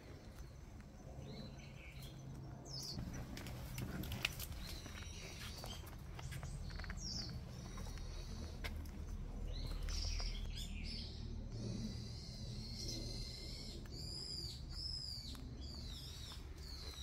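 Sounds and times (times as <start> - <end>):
birds chirping: 0.0 - 17.0
low rumble: 0.1 - 17.0
footsteps on leafy dirt path: 2.9 - 10.7, 14.8 - 17.0.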